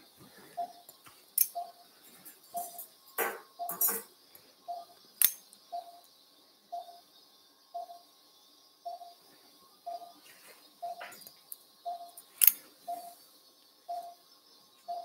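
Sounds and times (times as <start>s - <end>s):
monitor beeping: 0.5s - 6.1s, 6.7s - 7.1s, 7.7s - 8.1s, 8.8s - 13.2s, 13.9s - 14.2s, 14.8s - 15.0s.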